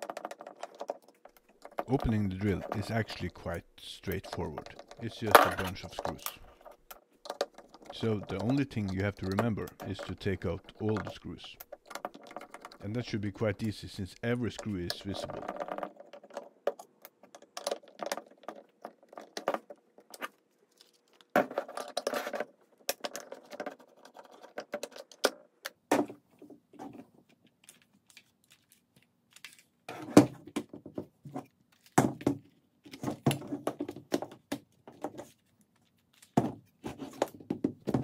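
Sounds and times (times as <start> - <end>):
plastic housing being handled: 4.1 - 13.7.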